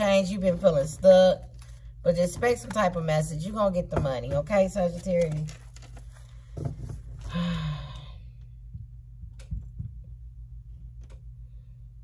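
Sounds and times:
steady low hum: 0.0 - 12.0
woman sighing: 7.3 - 8.2.

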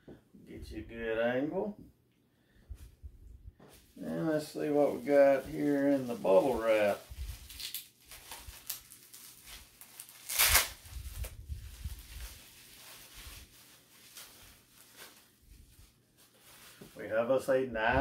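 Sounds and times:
bubble wrap crinkling: 3.7 - 17.5.

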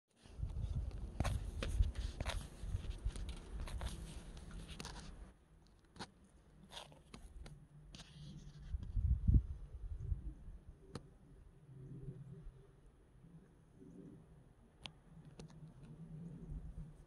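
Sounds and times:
camera handling clicks and rustles: 0.9 - 8.1.

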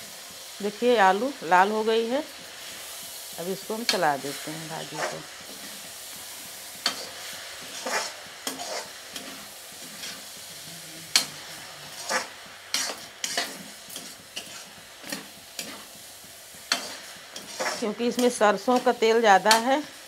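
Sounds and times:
frying sizzle: 0.0 - 20.0
metal ladle scraping pan: 6.8 - 10.4, 11.0 - 15.9, 16.7 - 19.6.

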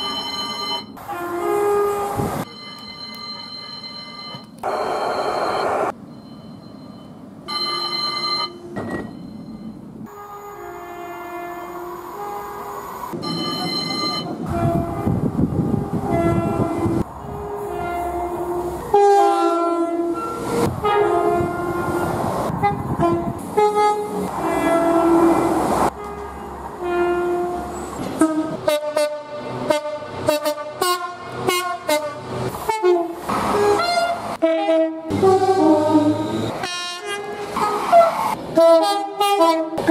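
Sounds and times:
train running noise: 0.0 - 39.9
train horns two notes: 14.5 - 22.0, 22.6 - 37.2.

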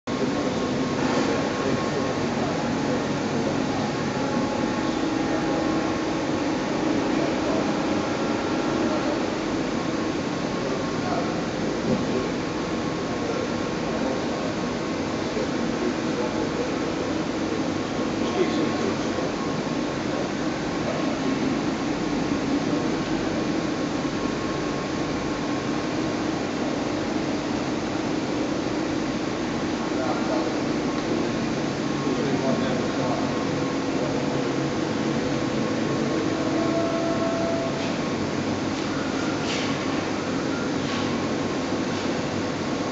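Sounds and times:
workshop machinery hum and whir: 0.1 - 42.9.

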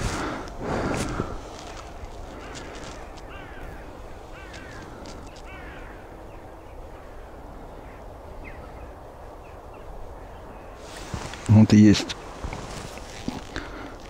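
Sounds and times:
crow cawing: 0.0 - 8.0
low background noise: 0.0 - 14.0.

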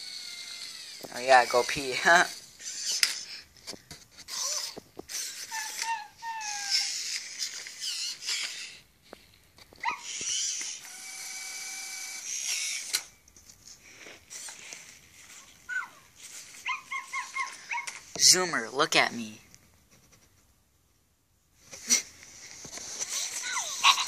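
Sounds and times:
toy robot motors whirring: 0.0 - 8.9, 9.7 - 13.2, 13.8 - 18.2, 21.8 - 24.0.

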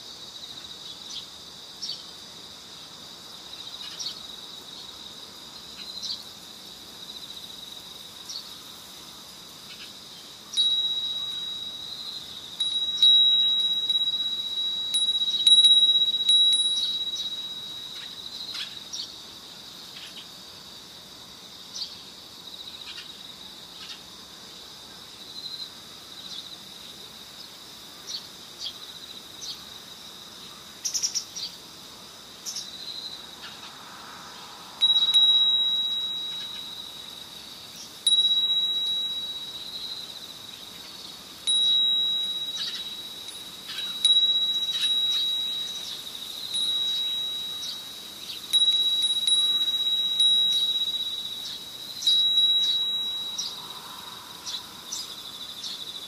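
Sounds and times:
chimes ringing: 10.5 - 18.6, 34.7 - 40.6, 41.3 - 56.0
steady high-pitched tone: 10.5 - 18.8, 32.6 - 56.0.

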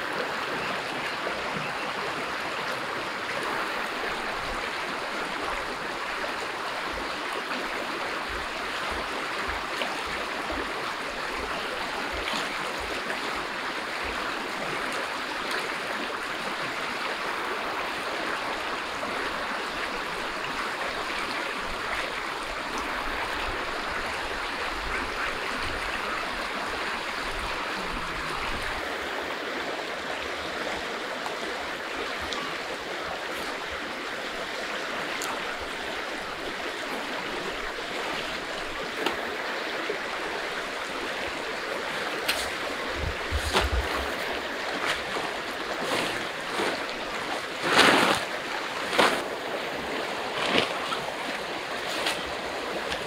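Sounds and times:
river rushing over rocks: 0.0 - 53.0.

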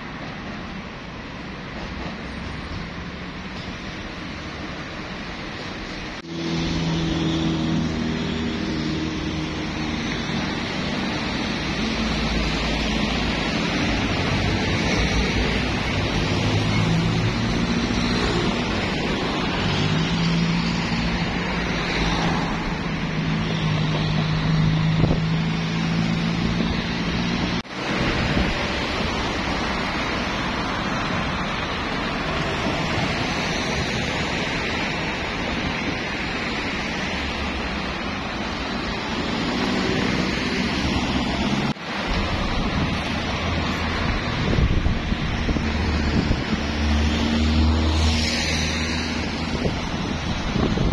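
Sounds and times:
tyre and wind noise: 21.2 - 30.3, 37.9 - 50.9.

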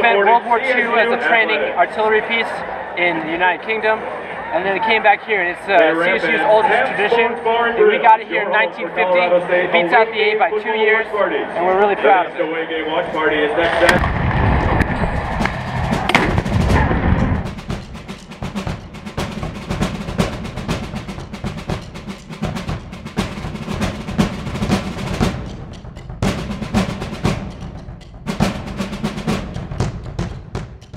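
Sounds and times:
fast drum percussion music: 14.8 - 30.9.

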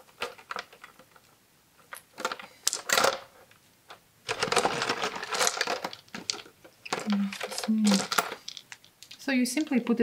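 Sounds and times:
beads clicking and rattling: 4.3 - 9.7.

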